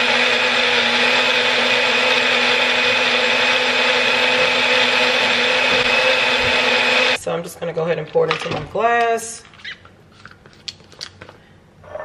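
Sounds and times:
blender motor whining: 0.0 - 7.2.

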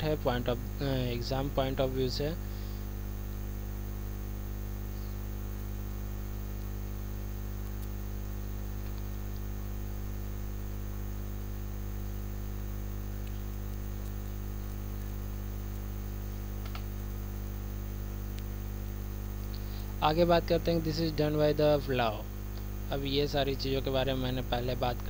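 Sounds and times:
electrical mains hum: 0.0 - 25.0
faint clicks: 16.6 - 16.9.

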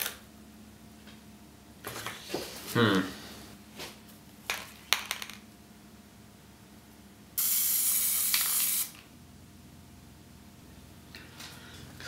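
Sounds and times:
spray can hissing: 7.4 - 9.0.

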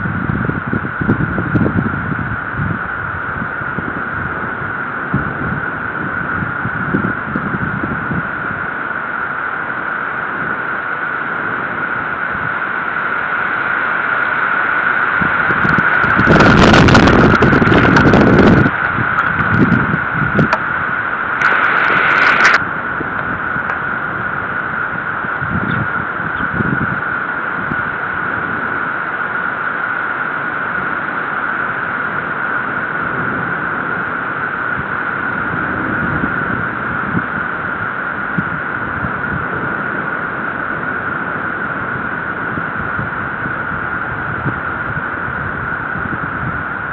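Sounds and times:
thunderstorm rushing hiss: 0.0 - 46.9.

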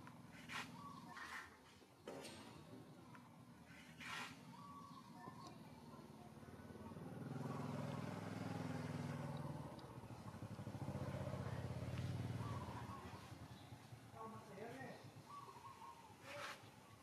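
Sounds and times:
vehicle engine running: 3.1 - 15.5.

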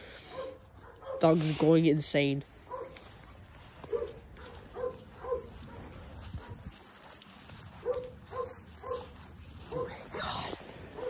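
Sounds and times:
dog barking: 0.3 - 1.4, 2.7 - 3.0, 3.8 - 6.6, 7.8 - 10.0.

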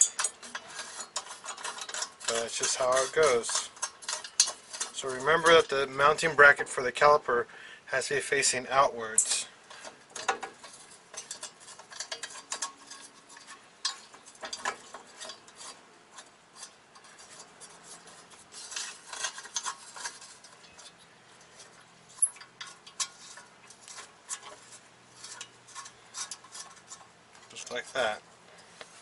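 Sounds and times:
metal parts clinking and scraping: 0.0 - 6.7, 9.0 - 29.0.

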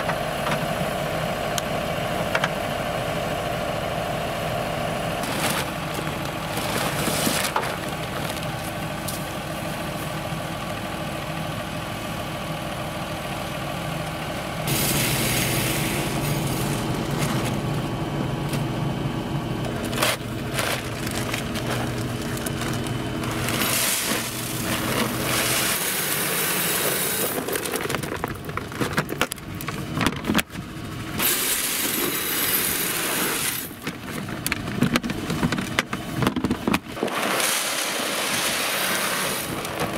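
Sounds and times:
tractor diesel engine idling: 0.0 - 39.9
seed pouring into hopper: 14.7 - 17.7, 19.9 - 28.3, 31.2 - 33.8, 37.0 - 39.9
paper bag crinkling: 19.7 - 29.2.

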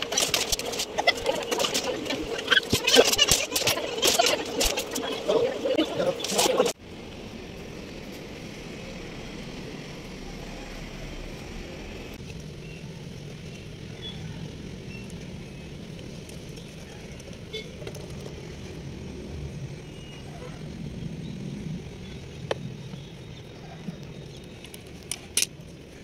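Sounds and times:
distant road traffic hum: 0.0 - 26.0.

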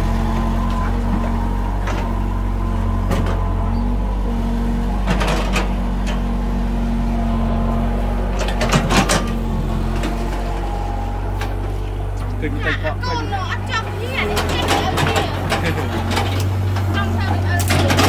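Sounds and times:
excavator diesel engine running: 0.0 - 18.0
bucket clanking and scraping soil: 14.0 - 18.0.

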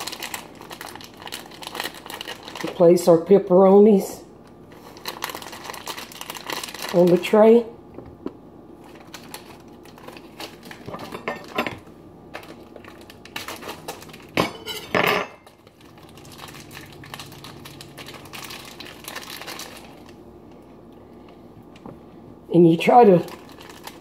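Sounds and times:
plastic bag crinkling: 0.0 - 3.1, 4.6 - 7.6, 8.8 - 14.4, 15.4 - 20.3, 22.7 - 24.0
dishes clattering: 14.4 - 15.4
dishes clinking on a metal tray: 14.4 - 15.4.

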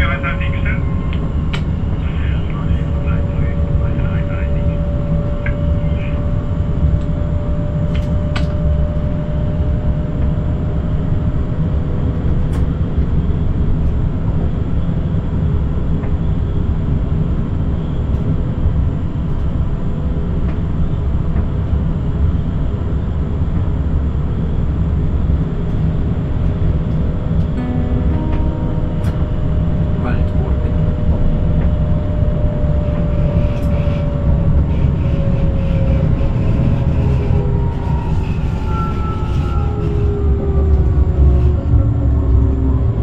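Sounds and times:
steady tone: 27.6 - 43.0
train wheels rumbling on track: 30.0 - 43.0.

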